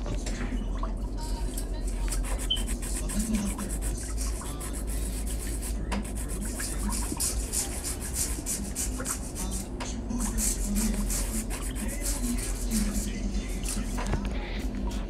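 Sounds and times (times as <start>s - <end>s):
nail file rasping: 2.1s - 9.6s, 10.3s - 13.8s.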